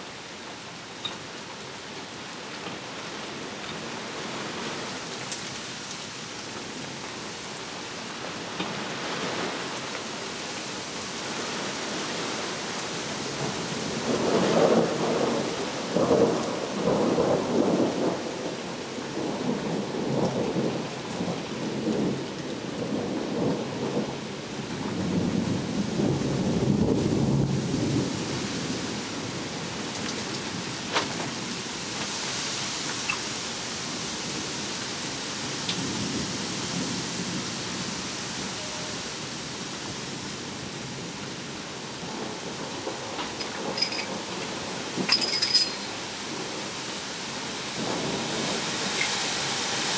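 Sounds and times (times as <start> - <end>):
steady rain: 0.0 - 49.9
thunder rumbling: 13.2 - 31.5, 40.1 - 49.0.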